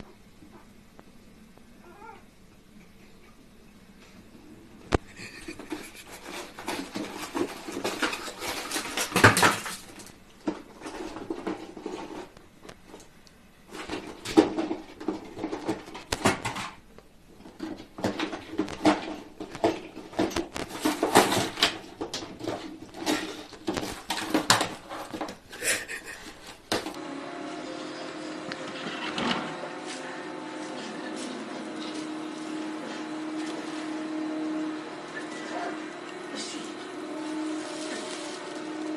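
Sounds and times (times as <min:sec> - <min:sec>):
items falling on floor: 0:05.0 - 0:13.0, 0:13.7 - 0:16.8, 0:17.4 - 0:27.0
drawer contents rattling: 0:06.2 - 0:12.3.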